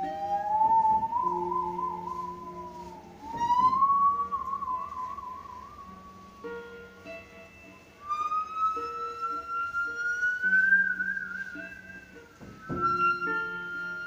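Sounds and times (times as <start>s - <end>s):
low notes from hand-held instrument: 0.0s - 14.0s
musical saw bowed tone: 0.0s - 14.0s
soft bow knock: 12.4s - 13.4s.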